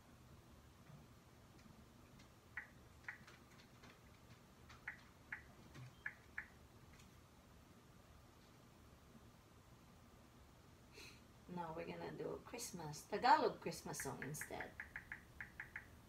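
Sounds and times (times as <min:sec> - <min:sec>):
touchscreen clicks: 0:04.8 - 0:06.6, 0:14.0 - 0:15.9.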